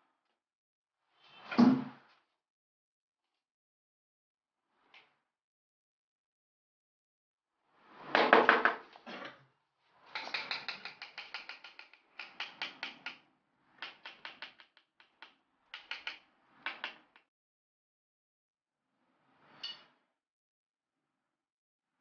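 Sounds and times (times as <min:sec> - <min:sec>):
taps on ceramic tiles: 0:10.2 - 0:13.2, 0:13.8 - 0:17.2.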